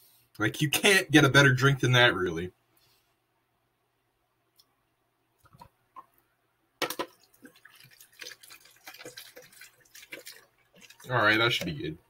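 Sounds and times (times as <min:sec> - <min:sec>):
liquid pouring into plastic cup: 0:06.8 - 0:11.8.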